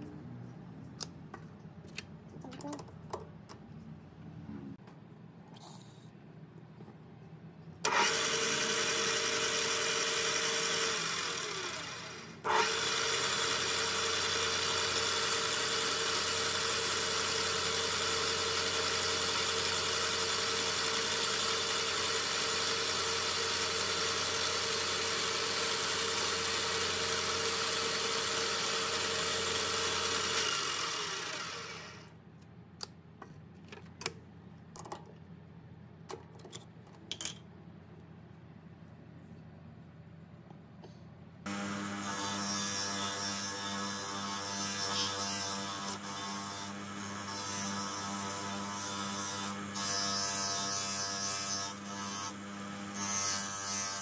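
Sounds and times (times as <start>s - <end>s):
power tool motor whirring: 7.8s - 32.1s, 41.5s - 54.0s.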